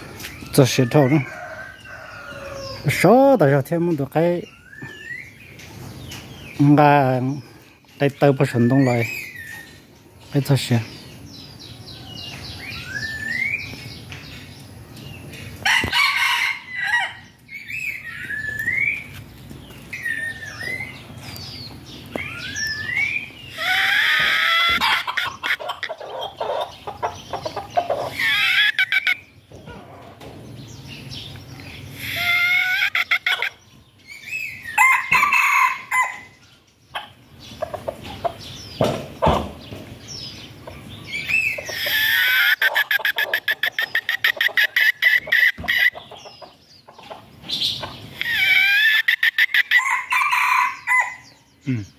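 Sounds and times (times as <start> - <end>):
small birds chirping: 0.0 - 51.9
rooster crowing: 1.0 - 2.9, 15.6 - 17.2, 34.8 - 36.4, 49.8 - 51.4.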